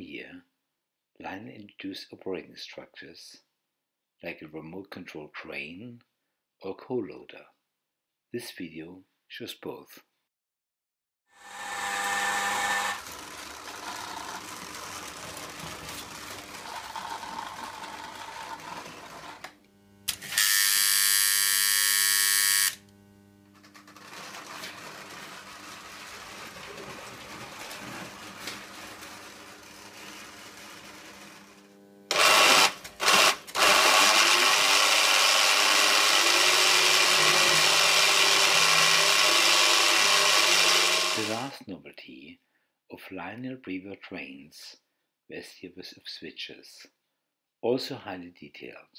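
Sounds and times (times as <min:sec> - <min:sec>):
toy electric motor humming: 0:11.4 - 0:22.9, 0:23.5 - 0:41.5.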